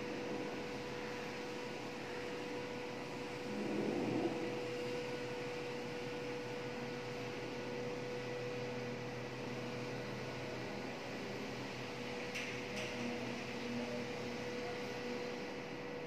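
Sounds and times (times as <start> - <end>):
lift electric hum: 0.0 - 16.0.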